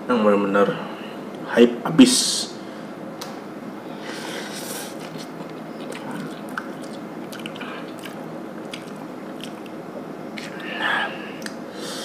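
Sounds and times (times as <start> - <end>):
person slurping noodles: 4.0 - 8.1
chewing with wet mouth clicks: 4.8 - 10.7, 11.4 - 11.6.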